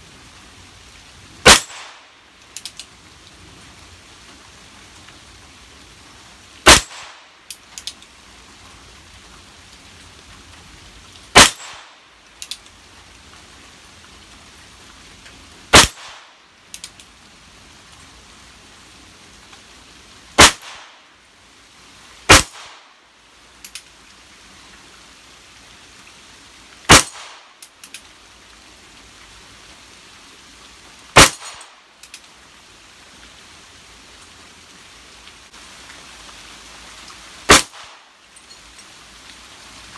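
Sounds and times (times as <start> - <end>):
revolver shots cracking: 11.4 - 11.9, 37.5 - 37.9.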